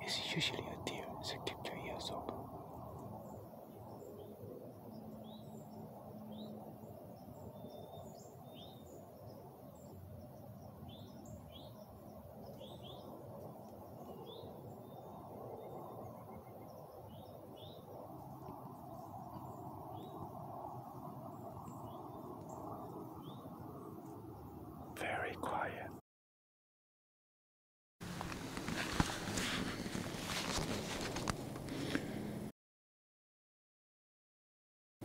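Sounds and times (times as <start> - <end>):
small birds chirping: 7.2 - 23.7, 24.4 - 25.9.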